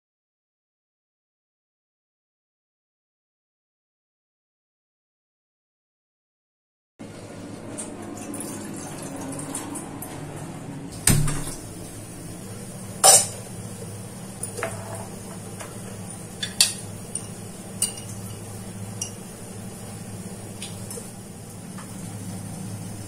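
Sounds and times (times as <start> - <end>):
steady low hum: 7.0 - 23.0
water poured into a pot: 8.1 - 9.7
metal kitchen vessels clanking: 12.9 - 13.5, 14.3 - 19.2.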